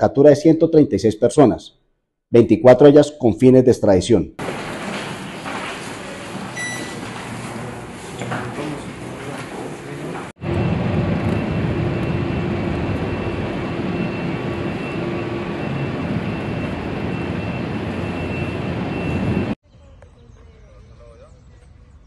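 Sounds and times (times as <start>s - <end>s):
aircraft engine running: 8.9s - 19.6s.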